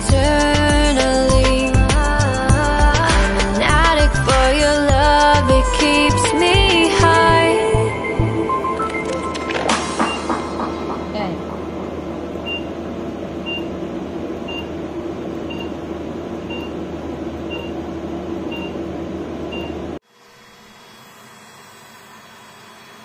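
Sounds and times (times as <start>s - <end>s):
machine fan noise: 0.0s - 23.0s.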